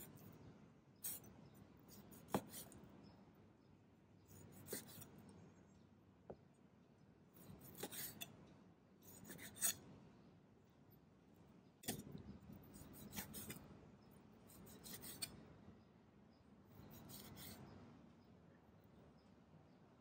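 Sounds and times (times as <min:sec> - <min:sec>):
knife slicing meat: 0:04.6 - 0:05.1, 0:07.6 - 0:08.3, 0:09.0 - 0:09.8, 0:12.7 - 0:13.6.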